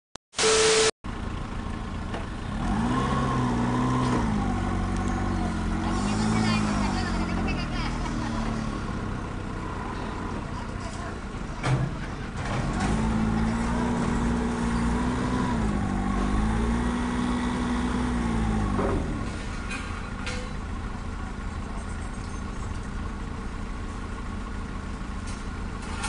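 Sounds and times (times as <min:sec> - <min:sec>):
forklift engine revving: 0:00.4 - 0:10.5, 0:11.9 - 0:19.8.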